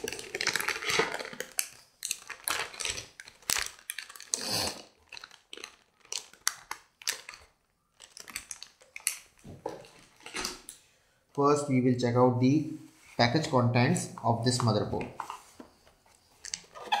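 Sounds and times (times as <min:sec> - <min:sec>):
anti-static bag crinkling: 0:00.0 - 0:10.8.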